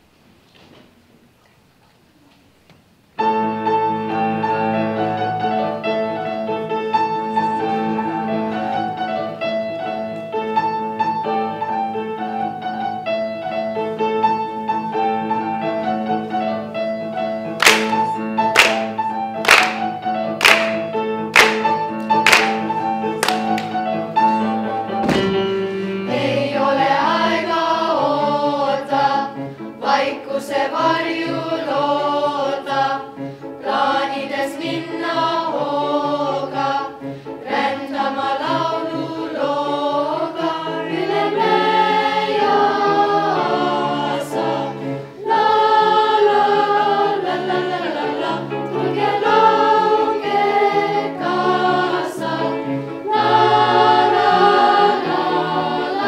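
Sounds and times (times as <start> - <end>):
children's choir singing: 17.5 - 24.2, 25.2 - 56.0
singers clapping: 17.6 - 23.8.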